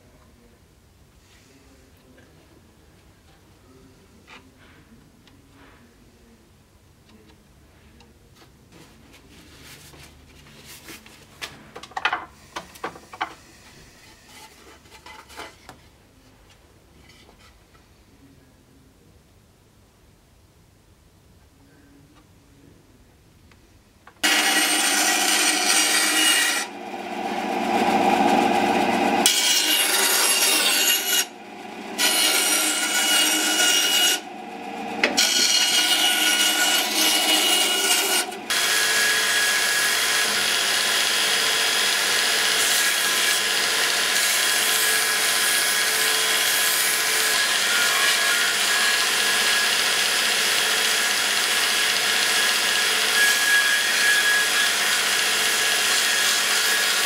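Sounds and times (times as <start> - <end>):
belt grinder sanding wood: 24.2 - 46.4
bandsaw cutting wood: 24.2 - 57.0.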